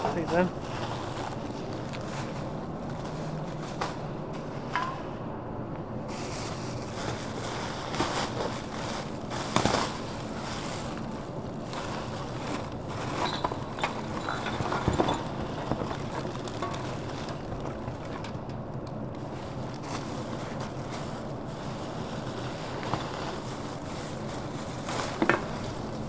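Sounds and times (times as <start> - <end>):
plastic bags rustling: 0.0 - 4.7, 6.0 - 26.0.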